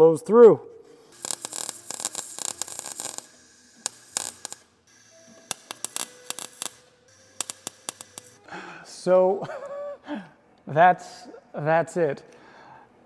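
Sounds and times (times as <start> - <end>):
welder arc crackling: 1.0 - 8.4.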